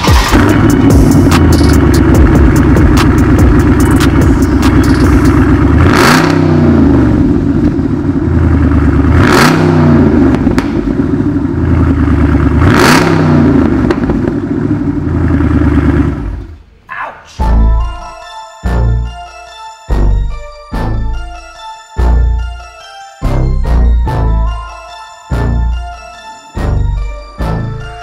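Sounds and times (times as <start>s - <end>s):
car engine idling and revving: 0.0s - 16.7s.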